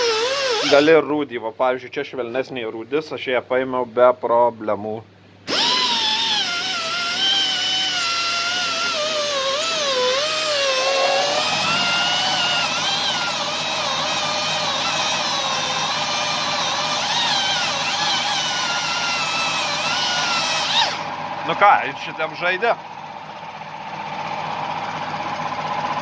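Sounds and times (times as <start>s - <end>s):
die grinder whining on metal: 0.0s - 1.0s, 5.5s - 21.6s.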